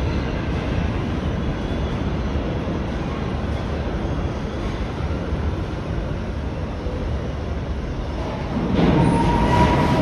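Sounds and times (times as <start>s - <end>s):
train rumbling through station: 0.0s - 10.0s
wheel squeal: 8.7s - 10.0s.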